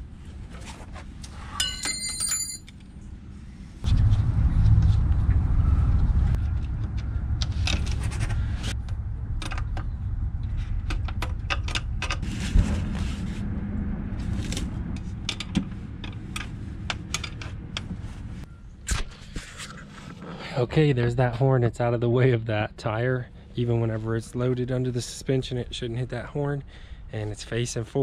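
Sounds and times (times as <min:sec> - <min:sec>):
steady low rumble: 0:02.7 - 0:28.0
metallic clicks and knocks: 0:10.8 - 0:12.3.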